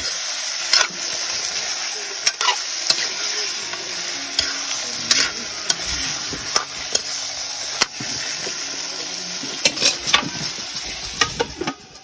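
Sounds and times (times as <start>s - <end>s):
food sizzling in a wok: 0.0s - 12.0s
metal utensil scraping a pan: 0.6s - 1.4s, 2.2s - 3.6s, 4.3s - 12.0s.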